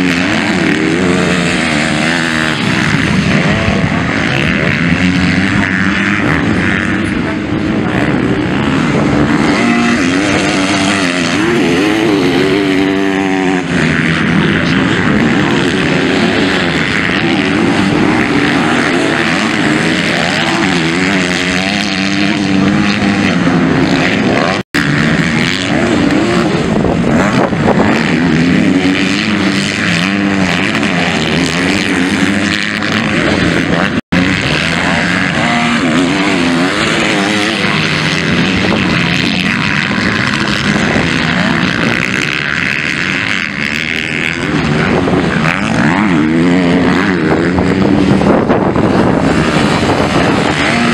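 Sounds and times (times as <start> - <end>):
motocross bikes revving: 0.0 - 50.9.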